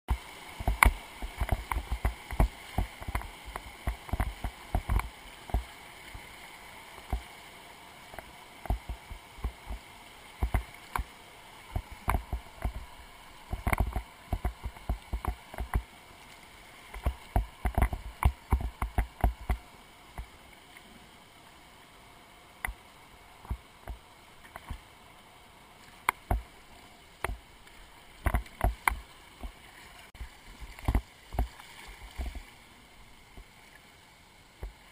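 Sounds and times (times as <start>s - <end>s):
water splashing against boat: 0.1s - 6.3s, 8.1s - 20.3s, 27.2s - 32.6s
river water rushing: 0.1s - 34.9s.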